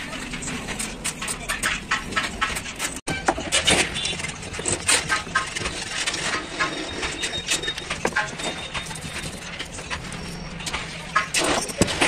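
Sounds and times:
metal tools clinking: 0:02.4 - 0:12.0.

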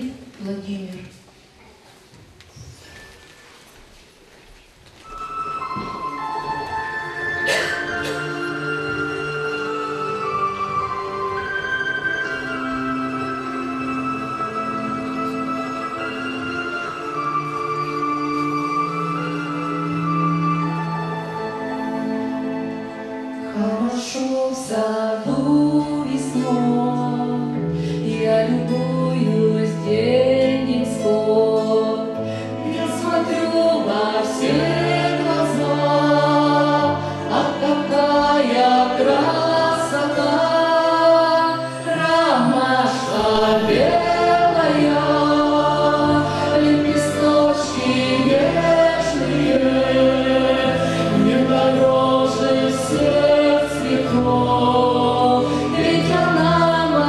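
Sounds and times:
instrumental accompaniment: 0:04.9 - 0:24.4, 0:25.4 - 0:57.0
woman and man singing: 0:23.6 - 0:57.0.

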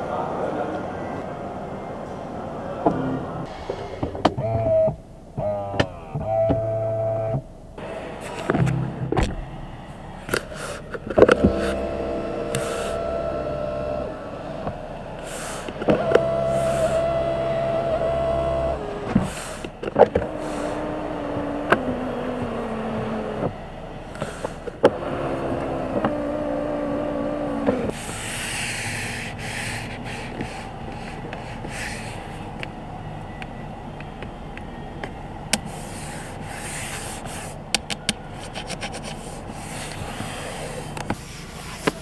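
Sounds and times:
power window motor running: 0:11.0 - 0:32.6
soft rubbing: 0:35.6 - 0:37.6, 0:38.3 - 0:42.0.

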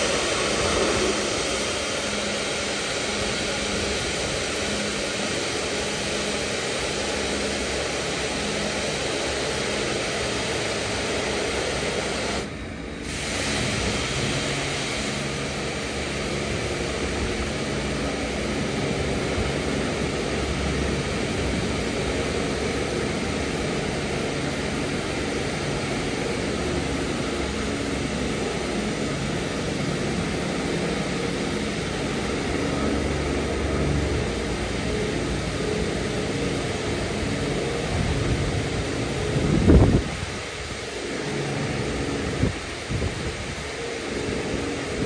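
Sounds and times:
low machine hum: 0:00.0 - 0:11.2
water jets hissing: 0:00.0 - 0:45.0.

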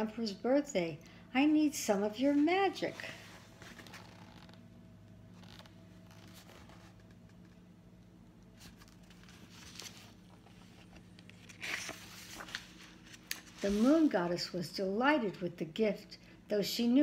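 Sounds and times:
steady low hum: 0:00.0 - 0:17.0
book pages rustling: 0:02.2 - 0:04.6, 0:05.4 - 0:07.6, 0:08.5 - 0:14.1.

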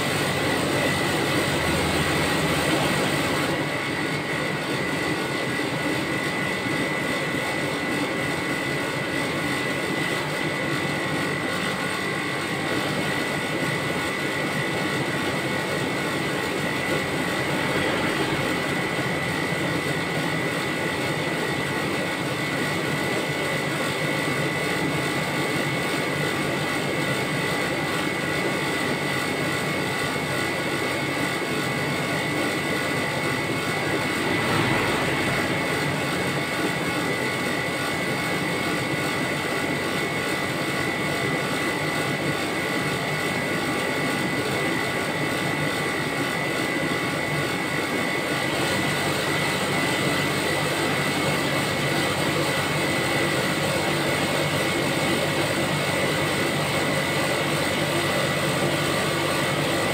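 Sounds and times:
refrigeration fan whirring: 0:00.0 - 0:59.9
high whine: 0:30.4 - 0:40.3.

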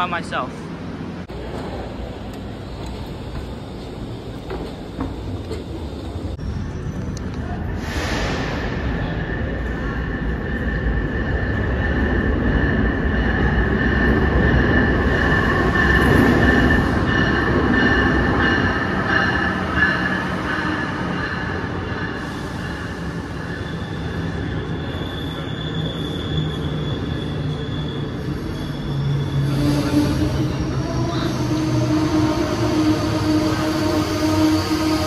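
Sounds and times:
train rumbling: 0:00.0 - 0:35.0
wheel and brake squeals: 0:09.0 - 0:33.4.

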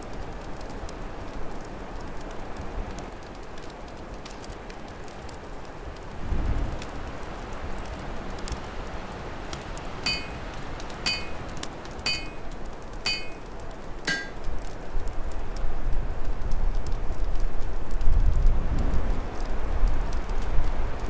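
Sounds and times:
fire crackling: 0:00.0 - 0:21.0
wind rumbling in gusts: 0:06.1 - 0:10.7, 0:14.8 - 0:21.0
ringing metallic strikes: 0:10.1 - 0:11.5, 0:12.1 - 0:12.5, 0:13.1 - 0:13.4, 0:14.1 - 0:14.4.

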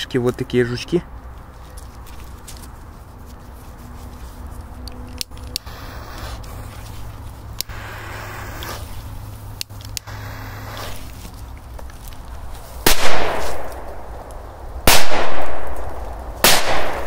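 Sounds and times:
firecracker bangs: 0:12.8 - 0:14.0, 0:14.8 - 0:17.0.

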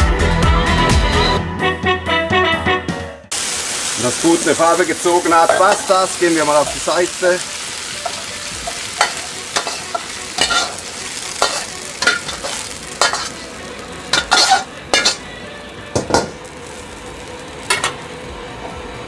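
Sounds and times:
chicken sizzling in oil: 0:03.3 - 0:19.0
metal spatula scraping a wok: 0:07.6 - 0:15.4.

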